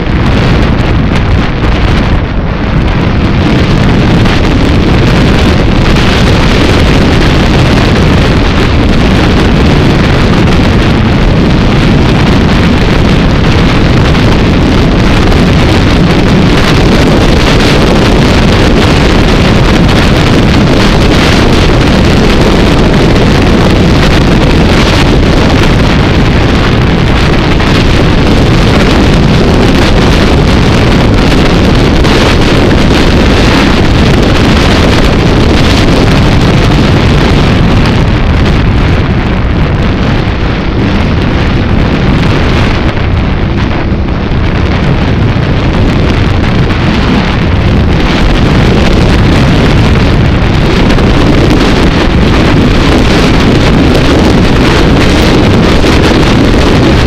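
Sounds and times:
vehicle engine and tyres: 0.0s - 57.0s
wind noise on microphone: 0.0s - 57.0s.

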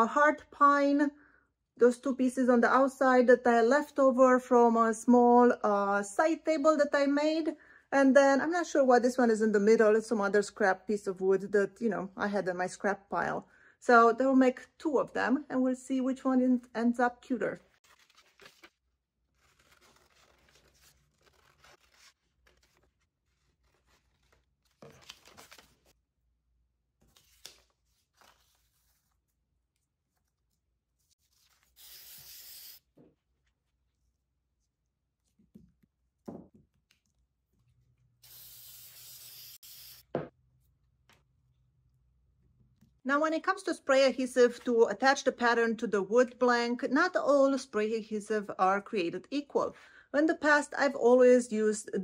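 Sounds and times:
paper rustling: 17.7s - 26.0s, 27.0s - 31.9s
aerosol spray hissing: 31.8s - 32.8s, 38.2s - 40.0s.

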